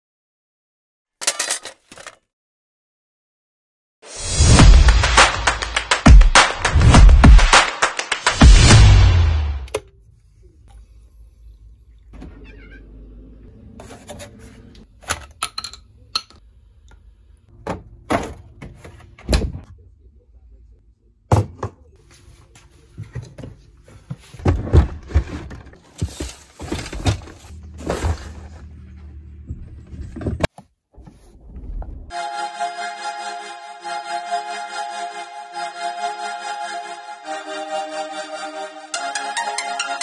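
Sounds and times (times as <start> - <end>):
music: 4.2 - 9.7, 32.1 - 40.0.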